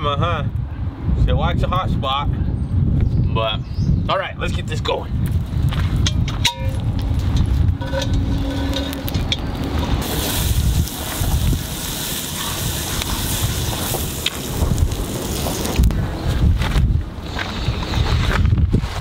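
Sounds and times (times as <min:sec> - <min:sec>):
wind buffeting microphone: 0:00.0 - 0:19.0
steady low rumble: 0:04.0 - 0:19.0
bright hiss: 0:10.0 - 0:15.8.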